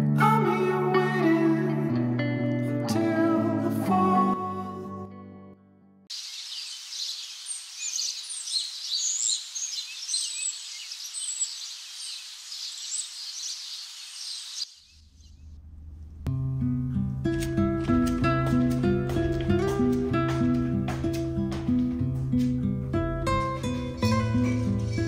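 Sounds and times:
small birds chirping: 6.1 - 15.5
steady outdoor hiss: 6.1 - 16.2.

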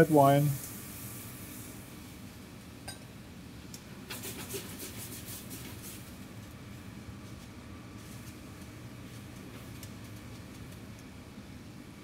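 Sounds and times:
faint clicks and crackles: 7.2 - 11.2.

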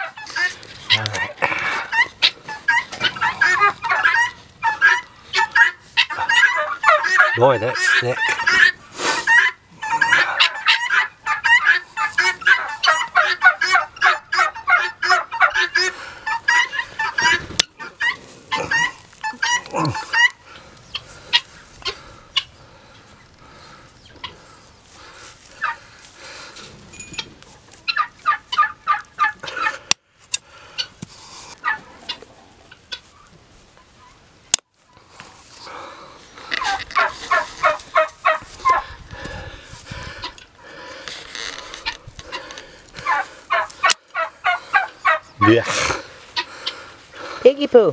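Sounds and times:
guinea fowl cackling: 0.0 - 26.6, 27.2 - 34.2, 34.8 - 47.6
poultry calling: 0.0 - 34.2, 34.9 - 47.9.

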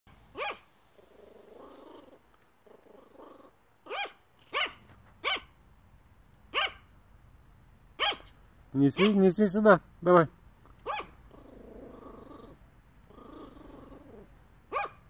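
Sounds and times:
small dog barking: 0.3 - 0.7, 3.8 - 5.5, 6.5 - 6.9, 8.0 - 8.3, 8.9 - 9.3, 10.8 - 11.2, 14.7 - 15.0.

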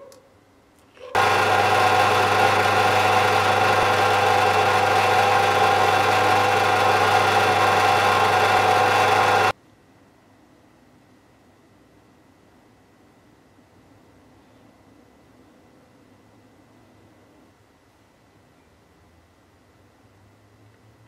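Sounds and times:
bench drill motor whining: 1.1 - 9.5.

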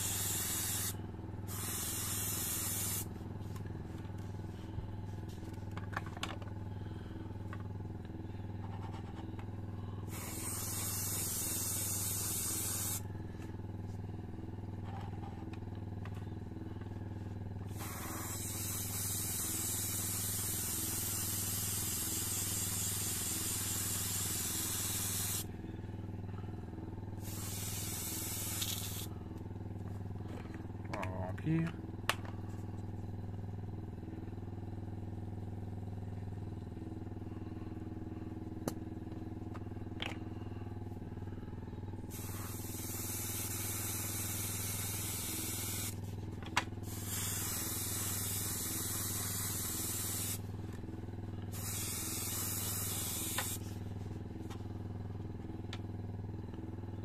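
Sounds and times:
airbrush spraying hiss: 0.0 - 3.1, 10.1 - 13.0, 17.7 - 25.5, 27.2 - 29.1, 42.1 - 46.0, 46.8 - 50.4, 51.5 - 53.7
air compressor humming: 0.0 - 57.0.

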